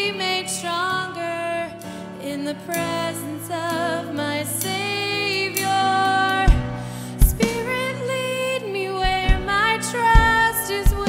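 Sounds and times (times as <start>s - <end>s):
band playing slow worship song: 6.4s - 8.1s.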